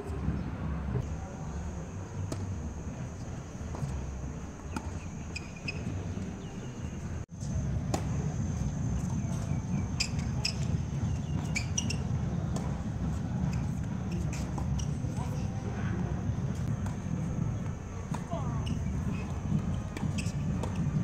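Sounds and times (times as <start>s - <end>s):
tennis ball hit by racket: 4.6s - 5.2s, 19.1s - 20.9s
ball bouncing on hard court: 4.6s - 6.2s, 16.6s - 21.0s
shoe squeaks: 4.7s - 7.1s, 9.5s - 12.4s, 13.4s - 15.6s, 18.4s - 21.0s.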